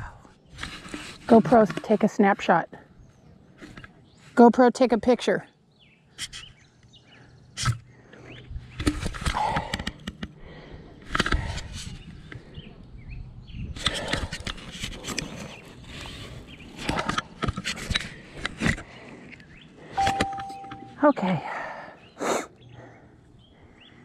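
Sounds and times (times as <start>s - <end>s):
bike clicks and rattles: 11.0s - 12.4s, 13.8s - 16.0s.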